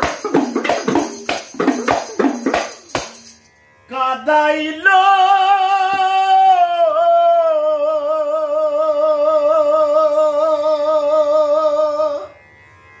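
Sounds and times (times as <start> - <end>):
man singing long vibrato note: 3.8 - 13.0.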